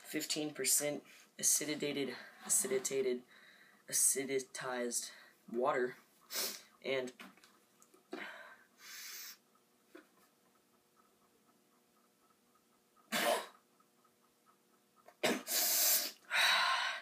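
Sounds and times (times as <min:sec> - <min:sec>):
person coughing: 0:13.1 - 0:13.6, 0:15.2 - 0:15.6.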